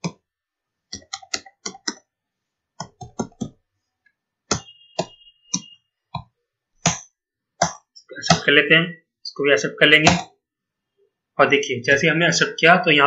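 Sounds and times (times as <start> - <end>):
computer keyboard typing: 0.9 - 2.1, 2.8 - 3.6.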